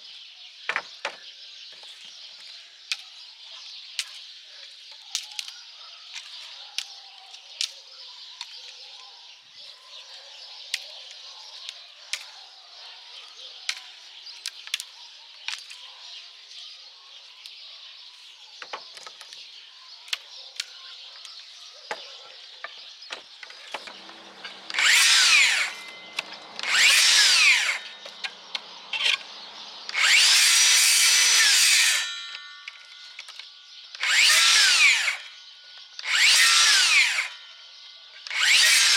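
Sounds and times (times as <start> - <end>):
dry twigs clicking and snapping: 1.8 - 8.8, 13.7 - 15.9, 18.6 - 30.2
circular saw cutting branches: 23.2 - 37.6, 38.2 - 38.9.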